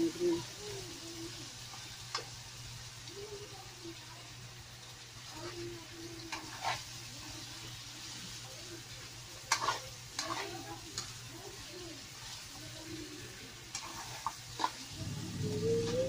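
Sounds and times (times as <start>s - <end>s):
food sizzling in oil: 0.0s - 16.0s.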